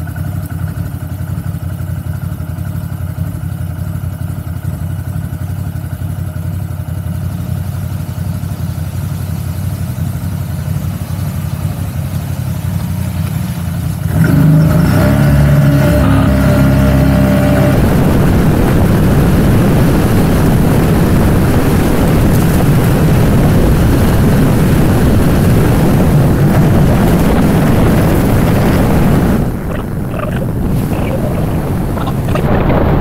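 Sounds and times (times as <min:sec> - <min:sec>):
atv engine running: 0:00.0 - 0:33.0
wind noise on microphone: 0:16.6 - 0:33.0.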